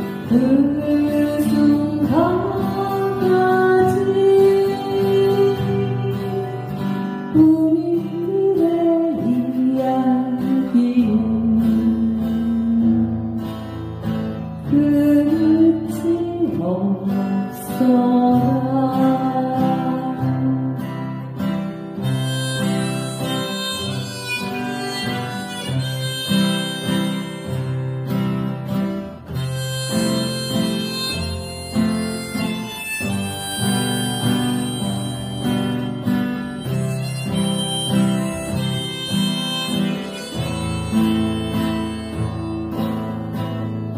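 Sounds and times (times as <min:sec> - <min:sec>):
woman singing: 0:00.0 - 0:13.6, 0:14.6 - 0:21.4, 0:33.0 - 0:35.9
acoustic guitar strumming: 0:00.0 - 0:43.9
held melody notes: 0:22.0 - 0:43.9.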